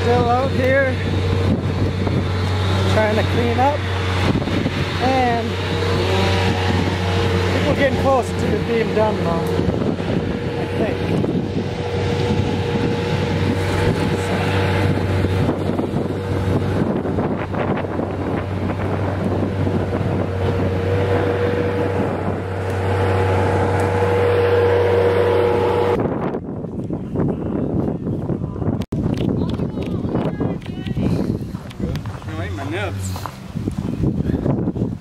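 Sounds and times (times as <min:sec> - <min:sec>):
engine running steadily: 0:00.0 - 0:35.0
wind on microphone: 0:00.0 - 0:35.0.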